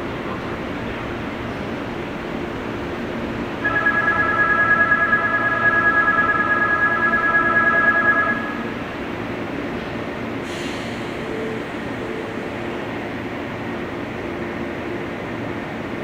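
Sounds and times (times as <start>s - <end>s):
electronic bell ringing: 3.6s - 8.8s.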